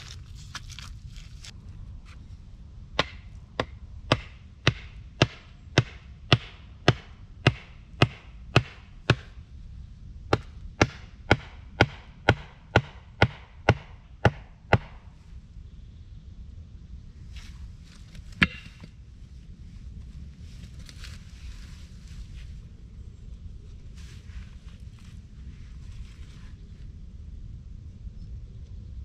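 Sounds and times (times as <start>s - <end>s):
hand tool striking wood: 18.4s - 18.9s.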